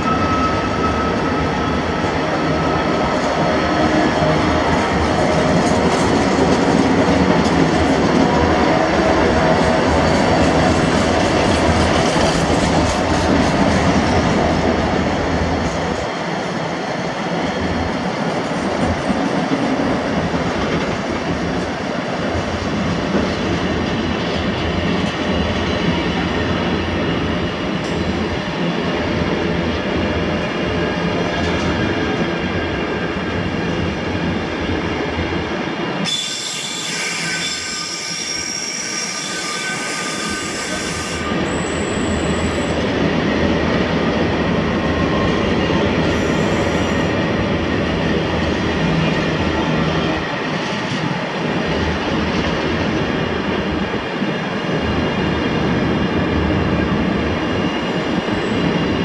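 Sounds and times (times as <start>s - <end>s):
freight train wheels rumbling on rails: 0.0s - 59.0s
high wheel squeal: 36.0s - 42.8s.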